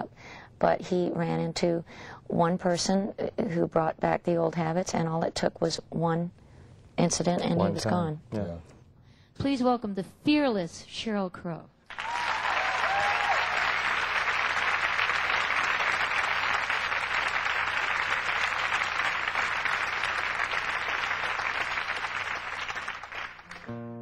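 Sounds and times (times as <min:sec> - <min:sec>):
audience applauding: 0:11.9 - 0:23.8.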